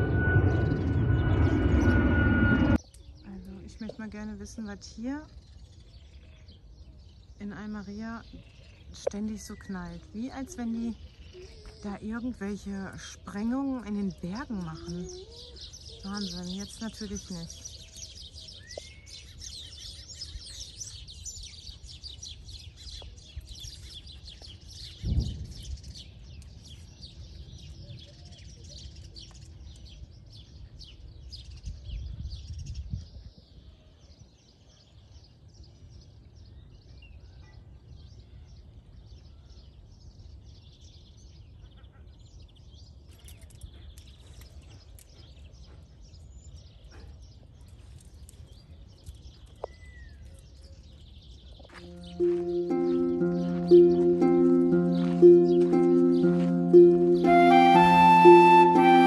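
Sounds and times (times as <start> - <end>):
low background rumble: 0.0 - 2.8
small birds chirping: 2.8 - 33.6, 38.1 - 58.8.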